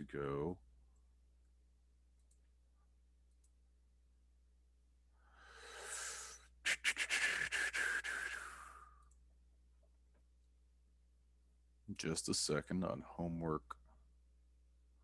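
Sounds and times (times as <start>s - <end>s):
person breathing in: 5.2s - 6.5s.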